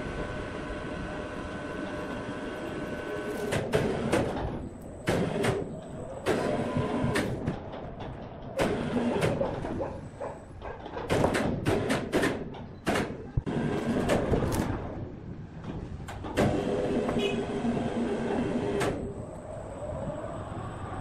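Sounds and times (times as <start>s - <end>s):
log carriage clanking on rails: 3.0s - 14.7s.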